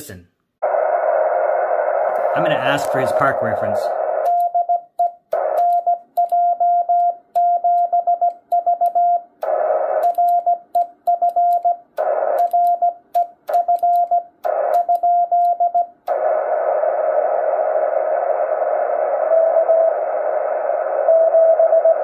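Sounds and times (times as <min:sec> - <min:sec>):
radio receiver hiss: 0:00.6 - 0:04.3
morse code tone: 0:04.3 - 0:09.3, 0:10.1 - 0:11.8, 0:12.4 - 0:15.9.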